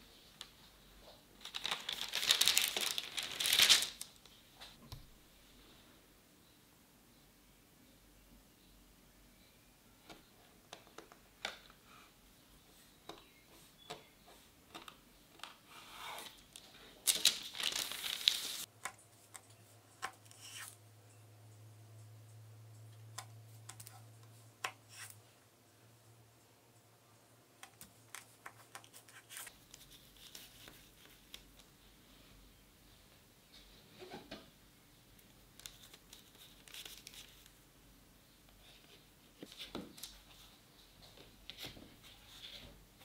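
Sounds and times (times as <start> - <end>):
paper rustling: 1.4 - 4.2, 16.2 - 18.7.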